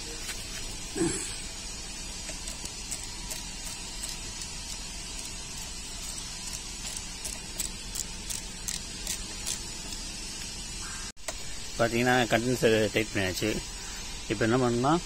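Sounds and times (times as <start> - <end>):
steady background hiss: 0.0 - 15.0.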